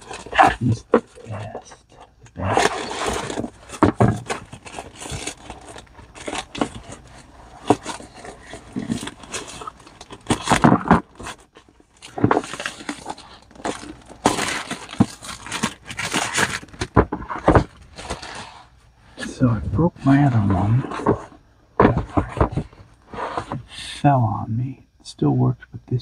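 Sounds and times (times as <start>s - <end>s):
plastic mailer crinkling: 0.0s - 19.4s, 20.0s - 23.6s
cardboard box sliding: 2.4s - 11.4s, 12.0s - 23.7s.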